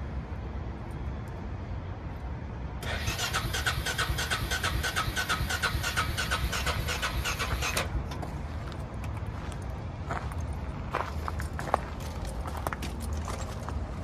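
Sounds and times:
electric starter cranking engine: 2.8 - 7.9.

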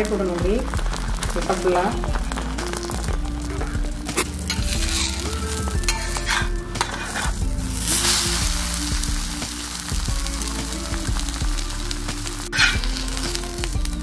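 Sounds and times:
omelette sizzling on griddle: 0.0 - 14.0
metal spatula scraping: 4.1 - 8.5, 12.5 - 13.0.

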